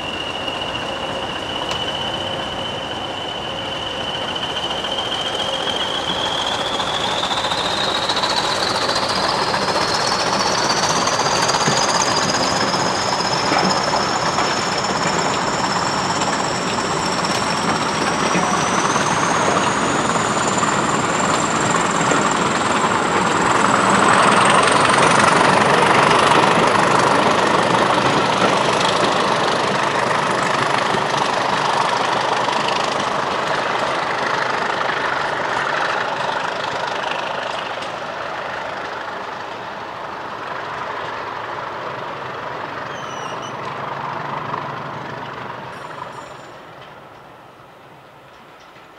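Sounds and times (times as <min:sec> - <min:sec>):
turbocharger whistles rising: 0:00.0 - 0:33.3, 0:42.8 - 0:43.7
diesel locomotive engines under load: 0:00.0 - 0:48.9.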